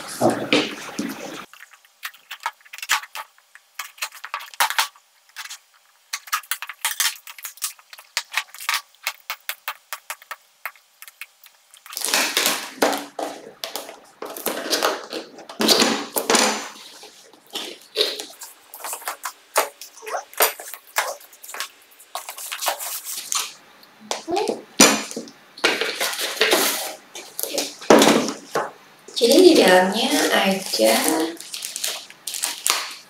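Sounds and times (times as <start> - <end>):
packaging scraping and rustling: 16.8 - 23.6, 30.2 - 33.0.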